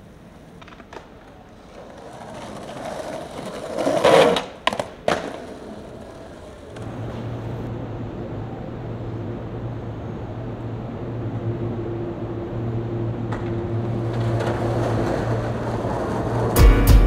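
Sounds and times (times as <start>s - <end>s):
skateboard clacking on ground: 0.0s - 6.9s, 13.2s - 16.6s
skateboard wheels rolling on pavement: 0.0s - 17.0s
low steady hum: 6.7s - 16.5s.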